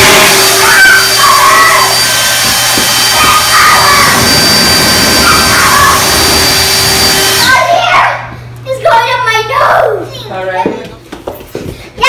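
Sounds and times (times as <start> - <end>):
leaf blower running: 0.0 - 7.8.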